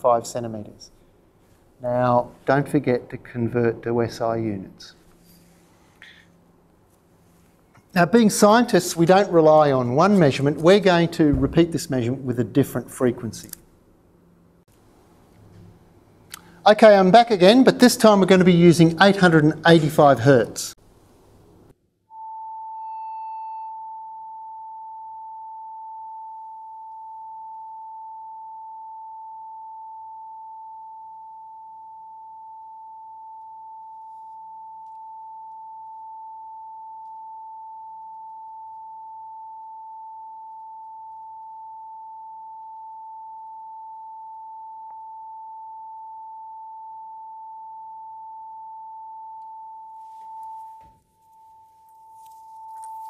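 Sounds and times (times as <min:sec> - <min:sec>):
steady pure tone: 0:21.2 - 0:53.0.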